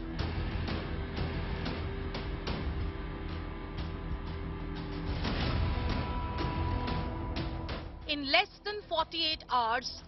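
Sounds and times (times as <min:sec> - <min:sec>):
music with steady beat and bass: 0:00.0 - 0:08.0.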